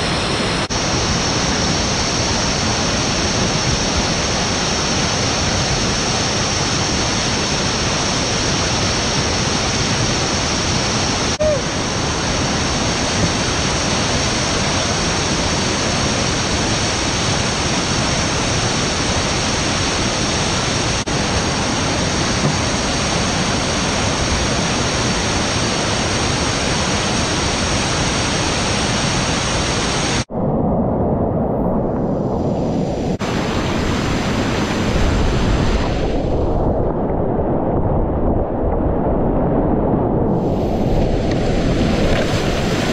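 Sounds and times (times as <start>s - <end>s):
whitewater rushing over rocks: 0.0s - 30.3s, 40.4s - 42.9s.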